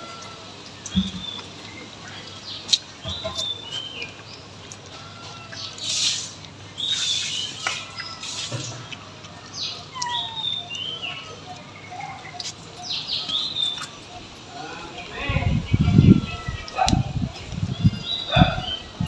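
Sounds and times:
puppies chewing and smacking: 0:00.0 - 0:15.2
small birds chirping: 0:00.1 - 0:19.0.

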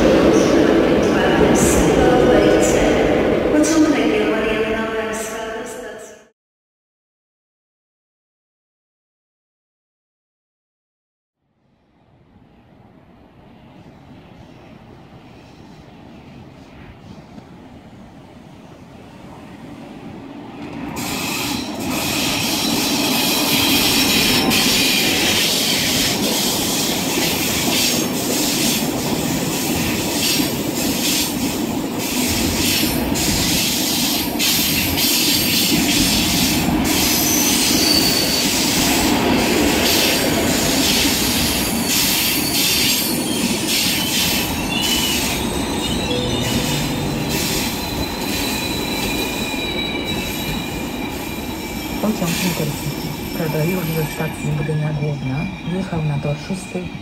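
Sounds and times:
high wheel squeals: 0:36.9 - 0:38.8.

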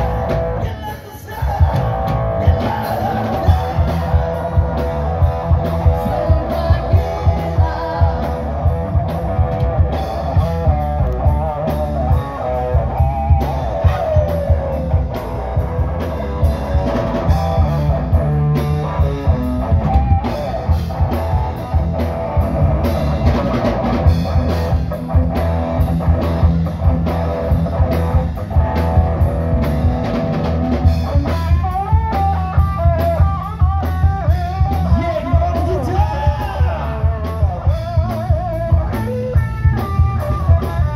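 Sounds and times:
electric guitars: 0:00.0 - 0:40.9
male singer: 0:00.3 - 0:08.8, 0:13.3 - 0:15.0, 0:33.2 - 0:38.4
drum beat: 0:01.4 - 0:40.9.

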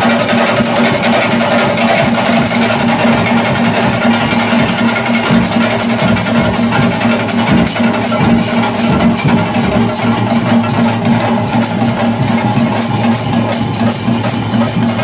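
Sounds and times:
loud music with drums: 0:00.0 - 0:15.0
steady held drone: 0:00.0 - 0:15.0.

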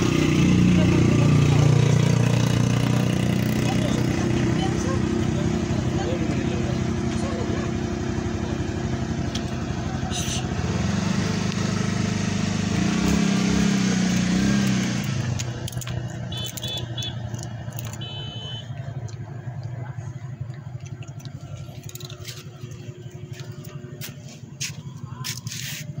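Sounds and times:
vehicle engine rumbling: 0:00.0 - 0:26.0
sharp clicks: 0:14.6 - 0:19.4.

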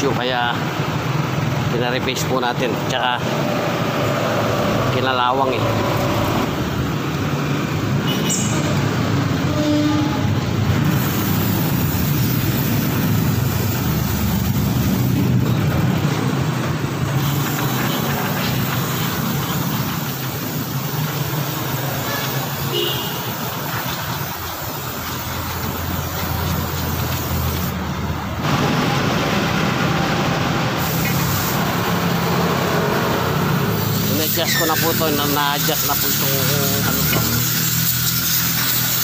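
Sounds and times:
garage background noise: 0:00.0 - 0:39.0
aerosol spray hissing: 0:10.8 - 0:15.2, 0:17.2 - 0:27.8, 0:30.8 - 0:32.2, 0:33.7 - 0:39.0.

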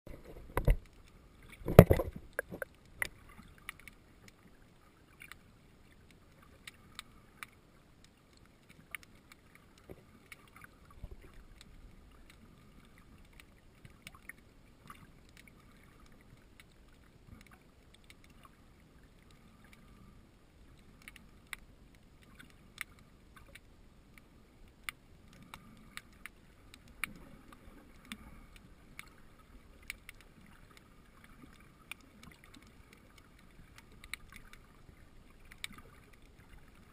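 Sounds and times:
low underwater rumble: 0:00.1 - 0:03.6.

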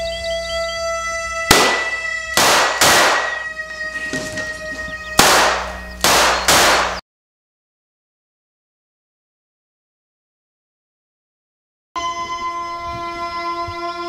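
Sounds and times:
musical drone: 0:00.0 - 0:07.0, 0:12.0 - 0:14.0
revolver gunshots: 0:01.5 - 0:04.0, 0:05.0 - 0:07.0.

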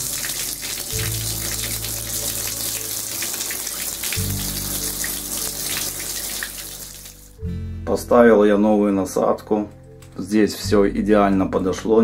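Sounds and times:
water spraying from shower head: 0:00.0 - 0:07.3
background music with low notes: 0:00.0 - 0:12.0.

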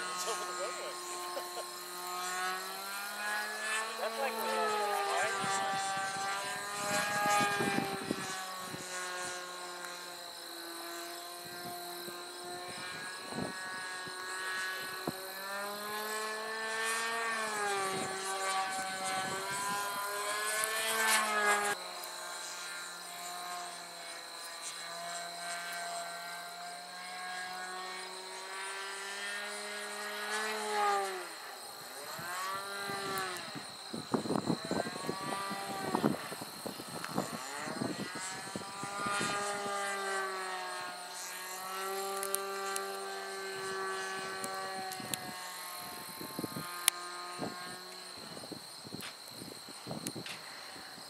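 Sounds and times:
model plane engine and propeller: 0:00.0 - 0:51.0.

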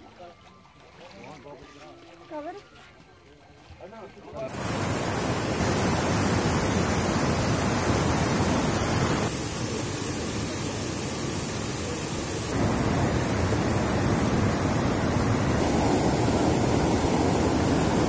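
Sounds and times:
rushing floodwater roar: 0:04.5 - 0:18.0.

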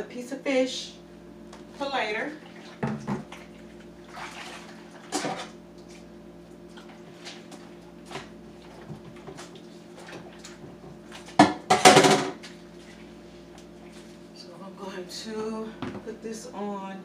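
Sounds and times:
dishes clinking in a sink: 0:11.4 - 0:12.4.

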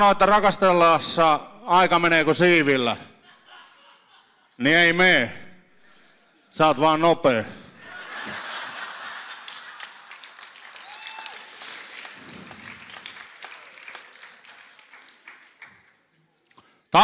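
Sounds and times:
audience applauding: 0:08.0 - 0:16.1.

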